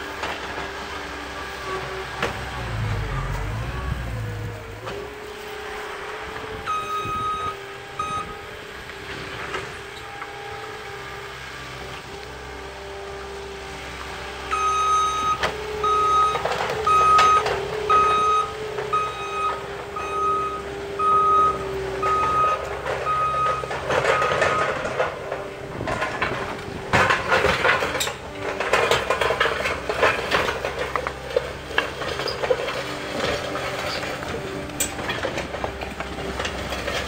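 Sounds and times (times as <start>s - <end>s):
loader engine running: 0.0s - 37.0s.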